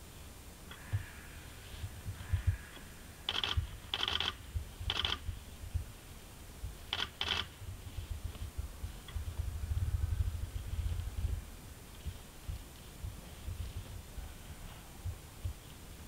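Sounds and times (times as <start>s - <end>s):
low rumble: 0.8s - 6.8s, 7.5s - 15.7s
short buzzing mechanical bursts: 3.3s - 5.2s.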